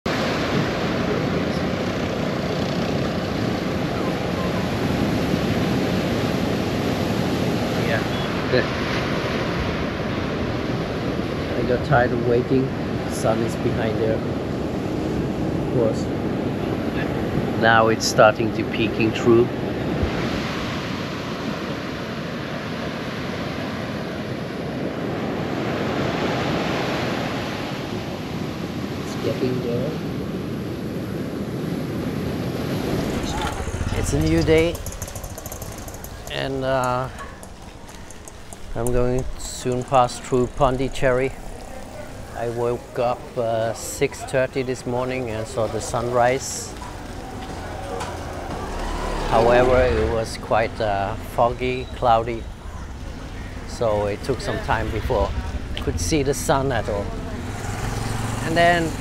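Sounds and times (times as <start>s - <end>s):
sea surf breaking on rocks: 0.1s - 17.9s, 19.2s - 59.0s
wind rumbling on microphone: 18.6s - 59.0s.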